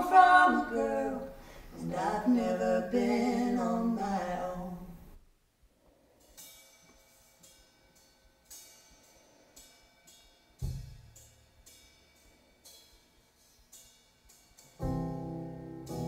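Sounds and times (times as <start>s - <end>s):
cymbal strokes: 6.0s - 16.0s.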